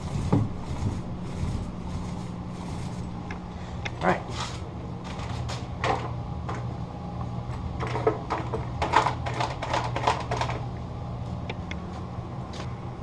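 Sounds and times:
paint roller knocking against tray: 0:00.0 - 0:02.0
steady low hum: 0:00.0 - 0:13.0.

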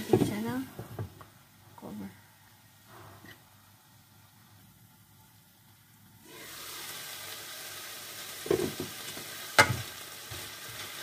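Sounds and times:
chicken sizzling in a frying pan: 0:03.6 - 0:11.0
wooden spatula knocking on pan: 0:09.6 - 0:09.9.

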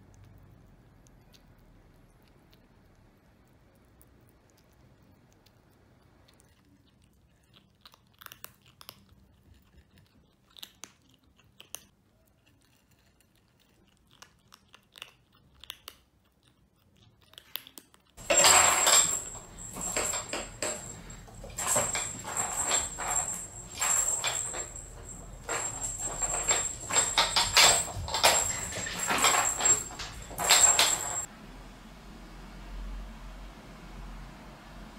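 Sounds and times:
kittens crunching dry kibble: 0:00.1 - 0:18.4
clatter of knocks and rustling: 0:18.2 - 0:31.3.

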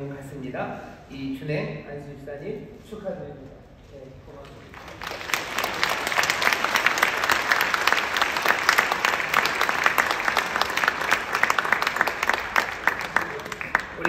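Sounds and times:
congregation applauding: 0:04.4 - 0:14.0.

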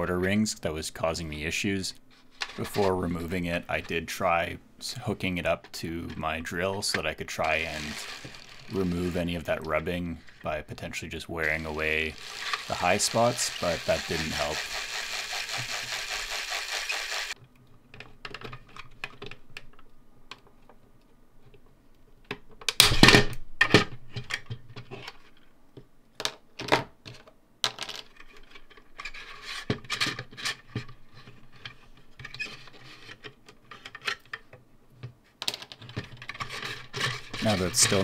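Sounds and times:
plastic parts clicking and rattling: 0:02.3 - 0:03.0, 0:06.8 - 0:10.6, 0:11.4 - 0:20.8, 0:26.2 - 0:38.0.

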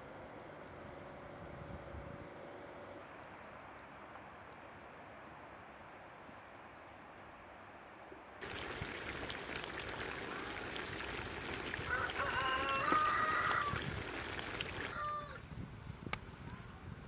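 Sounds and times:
meat sizzling in a pot: 0:08.4 - 0:15.0.

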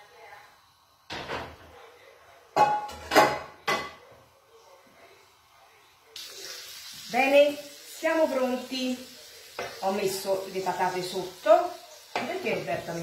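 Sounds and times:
hot food sizzling: 0:05.2 - 0:13.0
frying pan clattering on hob: 0:12.1 - 0:12.8.

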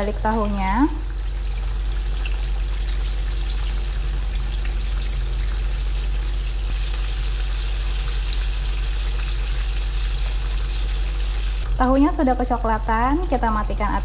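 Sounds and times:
constant low hum: 0:00.0 - 0:14.0
tofu deep-frying in oil: 0:00.0 - 0:14.0.

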